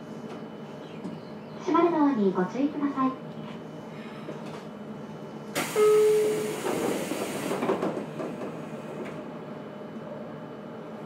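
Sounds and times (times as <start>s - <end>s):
train doors air hiss: 5.5s - 9.3s
short steady tone: 5.7s - 6.4s.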